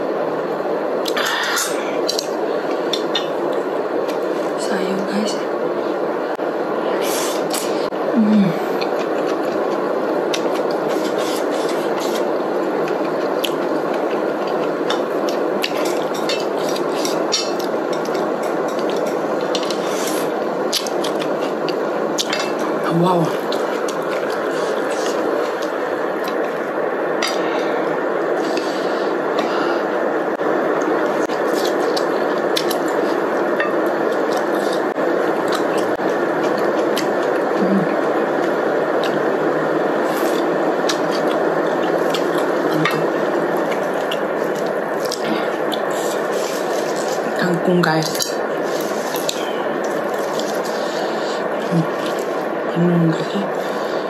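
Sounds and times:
person chewing: 0:08.8 - 0:22.8, 0:23.4 - 0:26.6, 0:31.1 - 0:39.2, 0:40.0 - 0:47.4, 0:48.1 - 0:52.5.

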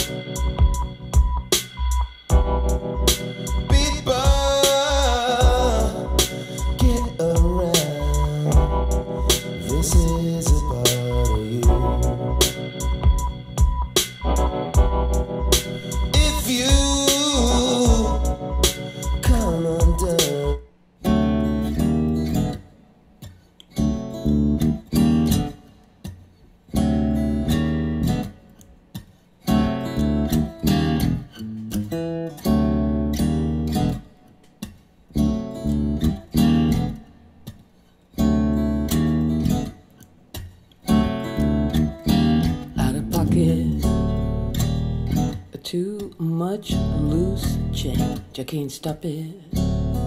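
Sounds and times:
deep bass: 0:00.0 - 0:20.6, 0:41.4 - 0:45.3, 0:46.8 - 0:48.2, 0:49.6 - 0:50.0
strummed guitar chords: 0:00.0 - 0:50.0.

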